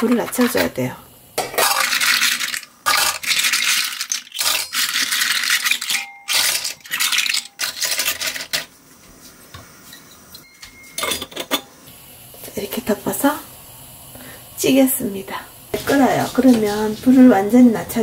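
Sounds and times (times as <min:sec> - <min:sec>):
shells clattering in metal basket: 0:01.5 - 0:08.7.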